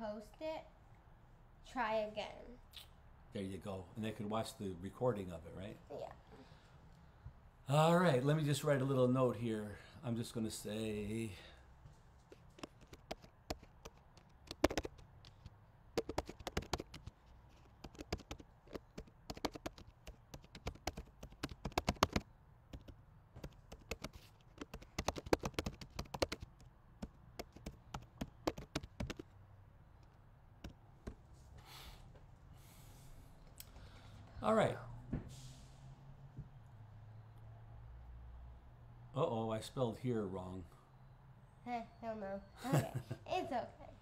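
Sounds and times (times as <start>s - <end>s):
keyboard typing: 12.3s - 29.3s.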